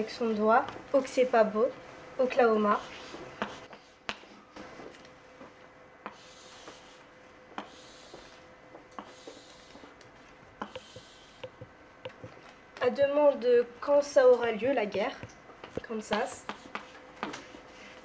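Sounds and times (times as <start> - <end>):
chalk scratching on blackboard: 2.5 - 4.0, 6.1 - 8.4, 9.0 - 10.0, 10.6 - 11.5, 16.2 - 18.0
chalk clicking on board: 2.8 - 4.2, 7.6 - 8.4, 9.0 - 9.9, 10.6 - 11.6, 16.1 - 17.5.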